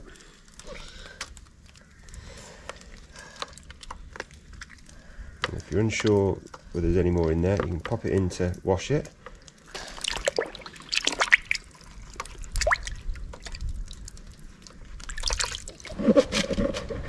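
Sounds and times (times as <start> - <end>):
water dripping and trickling: 0.0 - 16.0
water splashing in a plastic tub: 4.5 - 16.8.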